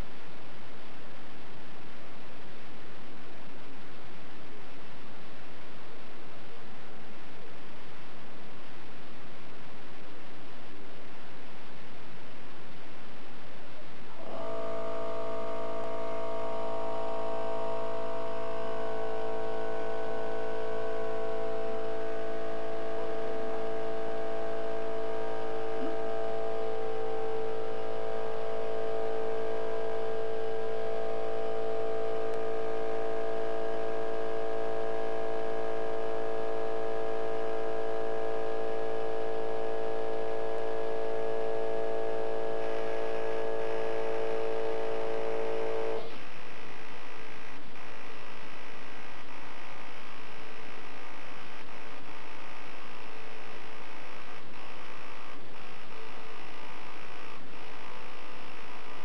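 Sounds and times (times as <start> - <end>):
marking machine humming and buzzing: 14.2 - 46.2.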